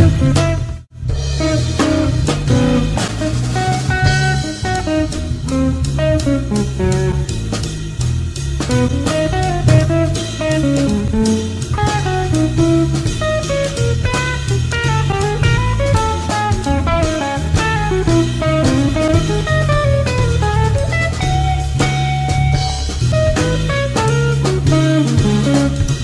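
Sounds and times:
drums and cymbals: 0:00.0 - 0:26.0
electric guitar melody: 0:00.0 - 0:26.0
walking bass: 0:00.0 - 0:26.0.

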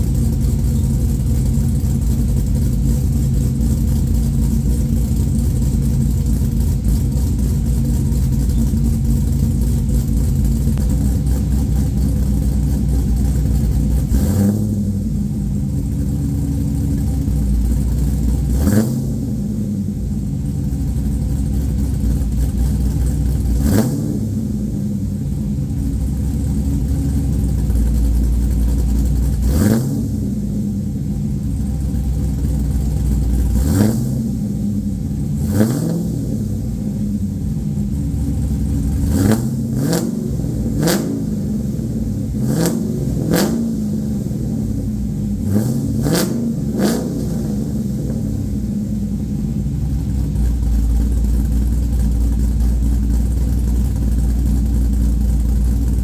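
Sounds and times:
engine revving: 0:00.0 - 0:20.0, 0:22.8 - 0:25.9, 0:29.2 - 0:30.9, 0:33.4 - 0:37.2, 0:38.4 - 0:51.1
car engine idling loudly: 0:00.0 - 0:56.0.

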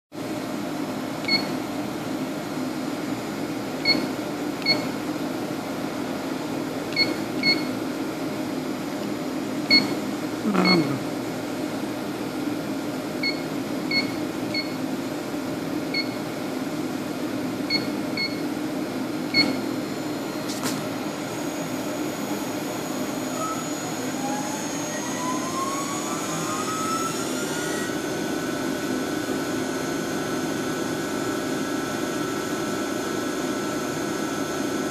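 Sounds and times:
two-pitched key beeps: 0:01.2 - 0:01.5, 0:03.8 - 0:04.9, 0:06.9 - 0:07.7, 0:09.7 - 0:10.0, 0:10.6 - 0:11.0, 0:13.2 - 0:14.8, 0:15.9 - 0:16.2, 0:17.7 - 0:18.4
machine hum: 0:19.3 - 0:34.9
motor whine: 0:21.0 - 0:34.9.

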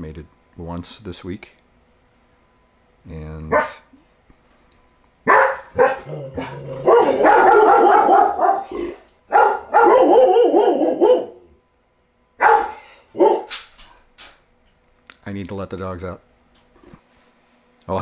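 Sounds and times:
dogs barking: 0:03.5 - 0:03.9, 0:05.3 - 0:11.6, 0:12.4 - 0:13.6.

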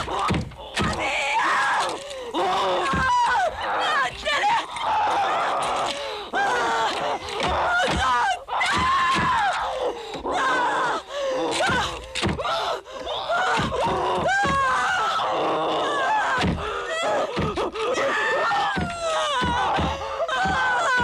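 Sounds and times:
woman screaming and crying: 0:00.8 - 0:21.0.

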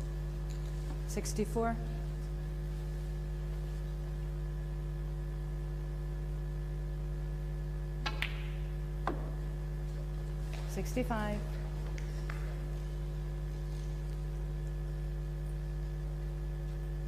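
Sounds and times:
electrical mains hum: 0:00.0 - 0:17.0
snooker balls clicking: 0:08.0 - 0:09.4.

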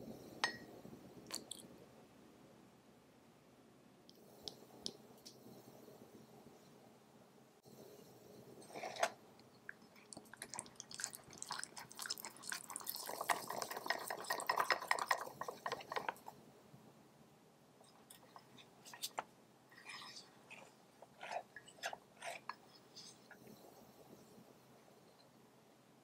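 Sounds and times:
whisk scraping batter in mug: 0:11.6 - 0:16.3.

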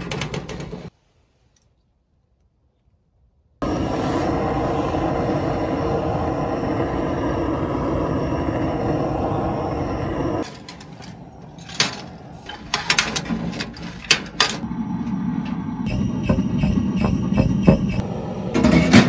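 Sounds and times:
torch flame hissing: 0:03.6 - 0:10.5.

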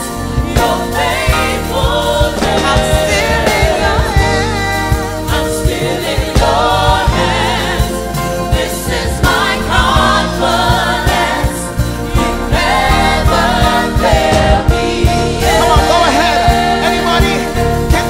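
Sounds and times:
drums: 0:00.0 - 0:18.0
lead vocalist singing with vibrato: 0:00.0 - 0:18.0
sustained bass line: 0:00.0 - 0:18.0
backing voices: 0:01.1 - 0:07.6.

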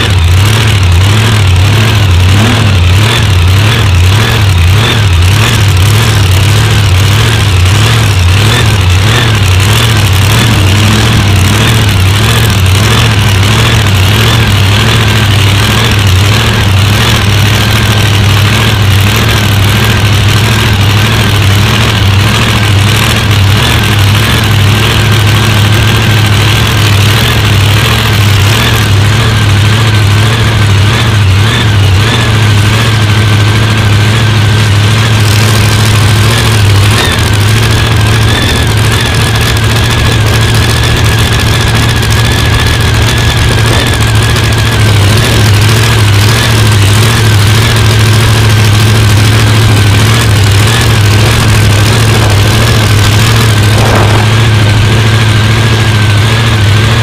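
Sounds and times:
supercharged engine idling: 0:00.0 - 0:57.0
thin steady whine: 0:34.2 - 0:57.0.

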